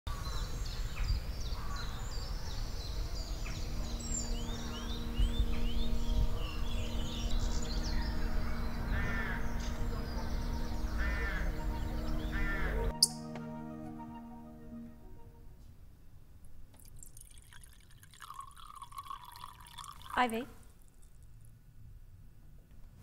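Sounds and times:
soft sustained musical tone: 2.7s - 16.0s
steady low rumble: 3.6s - 12.8s
crow cawing: 8.0s - 9.9s, 10.8s - 13.0s.

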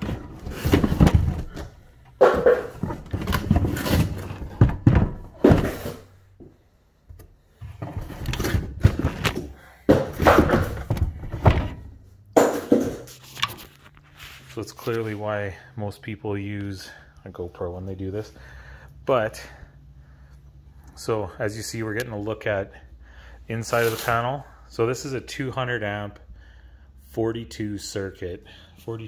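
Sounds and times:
cardboard scraping: 0.0s - 6.2s, 7.6s - 11.9s
thuds and knocks: 0.0s - 6.5s, 7.7s - 13.1s.

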